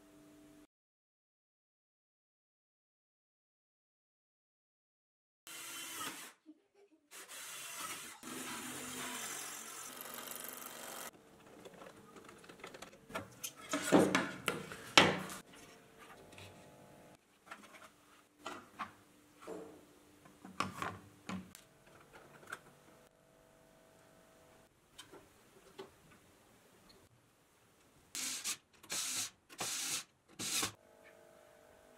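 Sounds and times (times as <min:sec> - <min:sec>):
electric drill boring through acrylic: 0:05.5 - 0:06.4, 0:07.1 - 0:11.1, 0:28.2 - 0:31.9.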